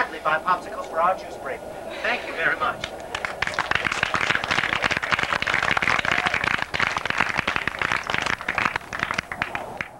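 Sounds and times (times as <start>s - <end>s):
crowd clapping: 2.8s - 9.9s.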